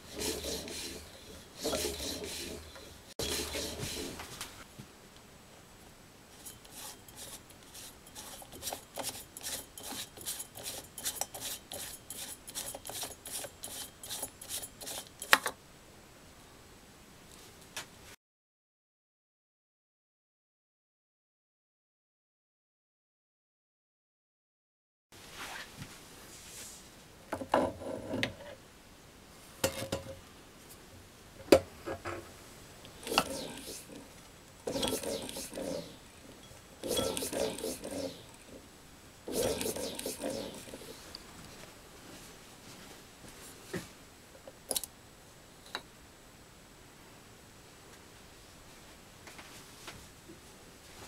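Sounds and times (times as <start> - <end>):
metal-on-metal scraping: 0.0 - 4.3, 6.4 - 15.4, 33.0 - 38.6, 39.3 - 41.1.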